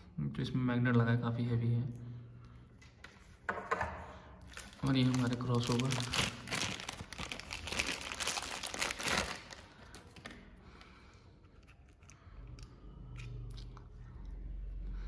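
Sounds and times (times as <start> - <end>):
plastic bag crinkling: 4.4 - 10.4.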